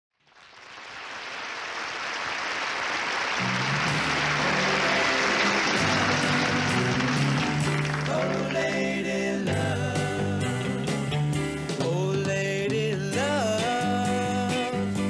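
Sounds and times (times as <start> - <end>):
noisy wash: 1.6 - 8.7
electric guitar and bass: 3.4 - 15.0.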